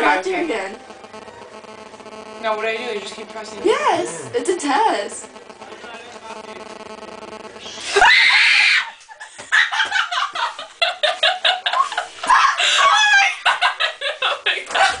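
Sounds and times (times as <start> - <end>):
person screaming: 7.8 - 9.0, 12.3 - 13.4
people laughing: 7.8 - 15.0.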